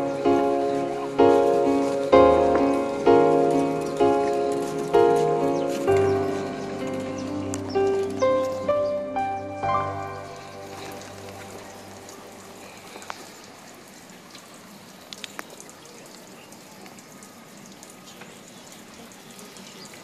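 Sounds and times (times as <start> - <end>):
fountain water pattering: 0.0 - 20.0
faint ticks: 15.1 - 16.2.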